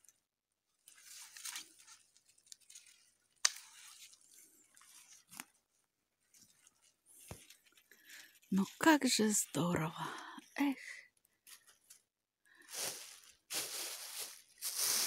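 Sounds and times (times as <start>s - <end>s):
branches rustling: 0.8s - 10.0s, 12.6s - 15.0s
pruning shears snipping: 3.4s - 3.8s.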